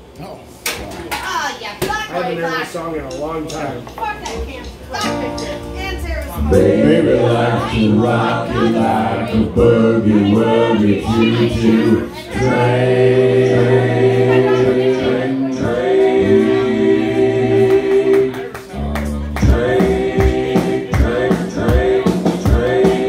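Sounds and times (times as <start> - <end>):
boogie-woogie rock backing track: 11.2 - 23.0.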